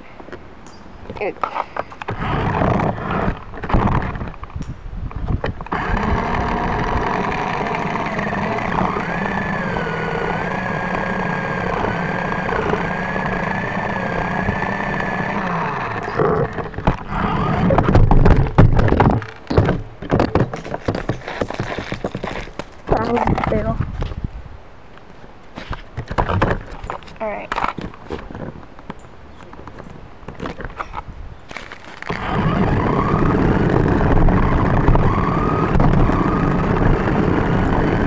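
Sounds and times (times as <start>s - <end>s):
motor whining: 2.0s - 4.4s, 5.6s - 19.0s, 32.0s - 38.0s.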